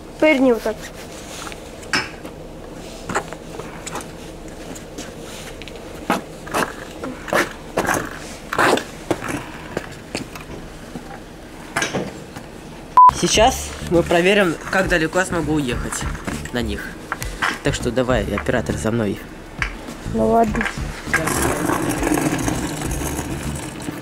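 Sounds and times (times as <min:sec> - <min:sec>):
wooden scooter wheels scraping asphalt: 0:21.1 - 0:24.0.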